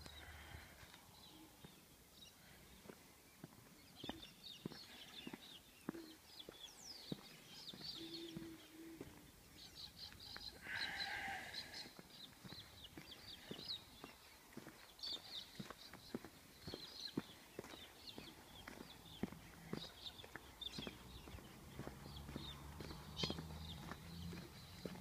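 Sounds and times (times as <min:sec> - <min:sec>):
small birds chirping: 0:00.0 - 0:25.0
footsteps on dirt track: 0:02.7 - 0:09.3, 0:11.6 - 0:25.0
harsh bird call: 0:09.7 - 0:12.0.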